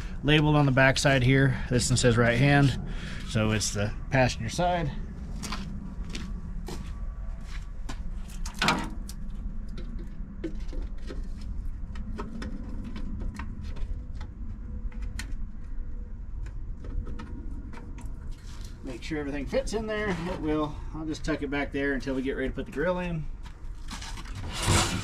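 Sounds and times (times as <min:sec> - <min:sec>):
wind rumble on microphone: 0:00.0 - 0:20.6
footsteps: 0:05.0 - 0:08.5.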